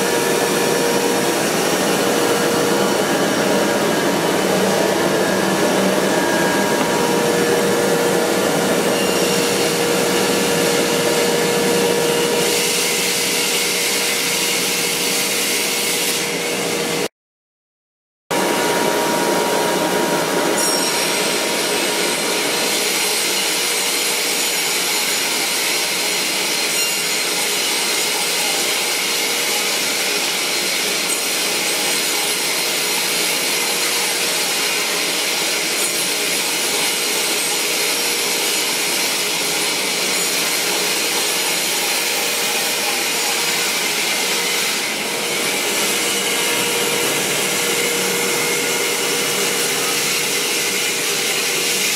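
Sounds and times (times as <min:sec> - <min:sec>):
machine hum: 0:00.0 - 0:12.4
band saw cutting wood: 0:00.0 - 0:17.1, 0:18.4 - 0:51.9.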